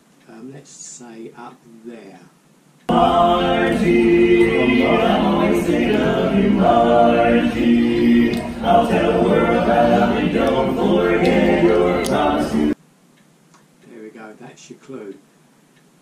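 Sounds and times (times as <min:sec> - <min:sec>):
men singing in close harmony: 0:02.9 - 0:12.8.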